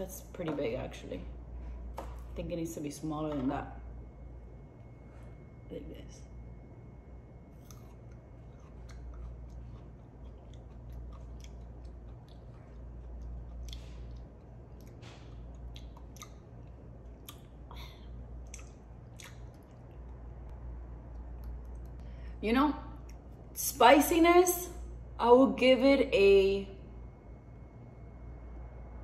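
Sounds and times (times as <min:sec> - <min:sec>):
steady low hum: 0:00.0 - 0:29.0
person chewing: 0:07.5 - 0:20.2
wet mouth clicks: 0:15.6 - 0:17.5, 0:18.4 - 0:19.9.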